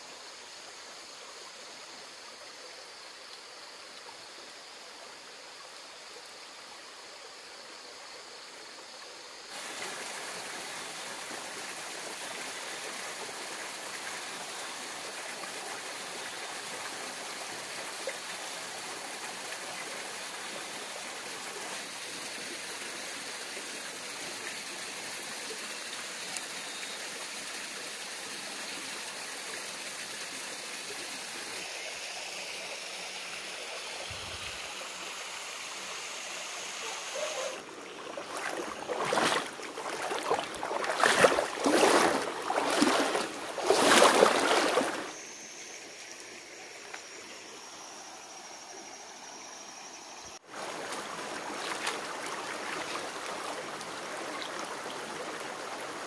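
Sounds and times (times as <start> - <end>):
rocky stream rushing: 37.1 - 45.2, 50.5 - 56.0.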